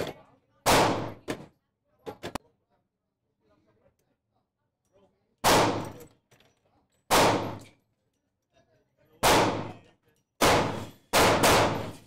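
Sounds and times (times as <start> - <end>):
handgun shots with echo: 0.0 - 1.4, 5.4 - 6.0, 7.1 - 7.7, 9.2 - 9.8, 10.4 - 12.0.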